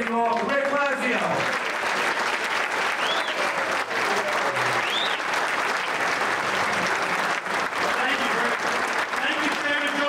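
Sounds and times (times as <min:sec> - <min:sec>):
audience applauding: 0:00.0 - 0:10.0
high whistles: 0:03.0 - 0:03.4, 0:04.8 - 0:05.2.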